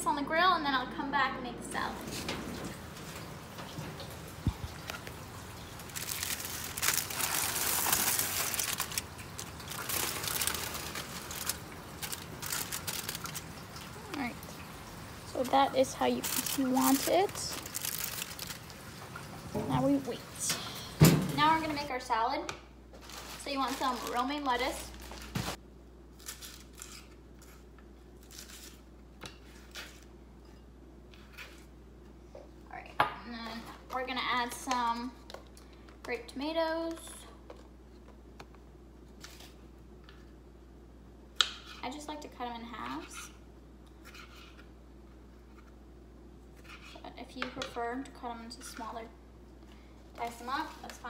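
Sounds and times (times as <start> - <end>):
lettuce tearing and rustling: 4.5 - 14.4, 16.0 - 19.0, 23.0 - 30.1, 39.1 - 39.6
aluminium foil crinkling: 4.6 - 14.4, 15.3 - 19.2, 23.0 - 28.9, 50.2 - 51.0.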